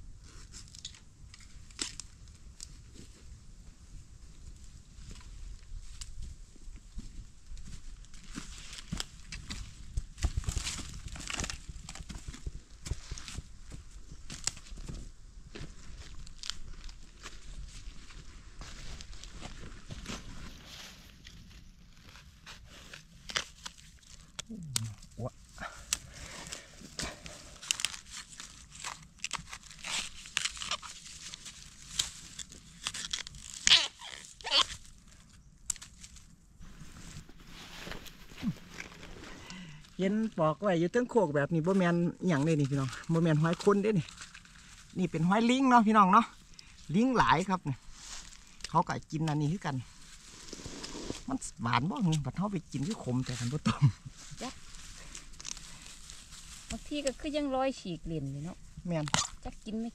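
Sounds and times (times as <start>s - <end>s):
bamboo shoots snapping: 0.6s - 2.8s, 10.2s - 12.5s, 14.3s - 15.0s, 16.0s - 17.4s, 22.9s - 25.1s, 25.8s - 36.2s, 48.2s - 49.4s, 54.7s - 57.2s, 59.0s - 59.5s
footsteps crunching dry leaves: 5.8s - 24.3s, 26.2s - 35.0s, 35.8s - 41.1s, 41.7s - 48.8s, 52.6s - 57.1s.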